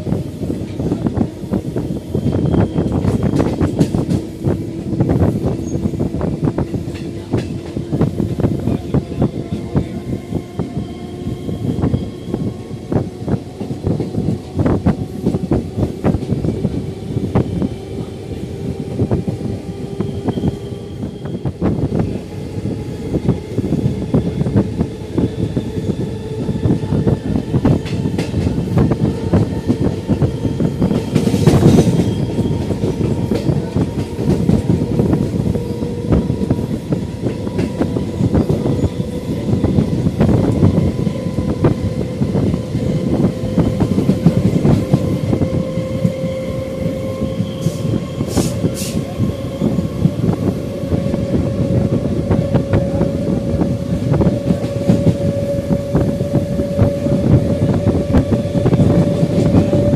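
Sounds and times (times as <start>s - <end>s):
train engine drone: 0.0s - 59.9s
train wheels clattering over rail joints: 2.9s - 5.9s, 27.6s - 46.9s.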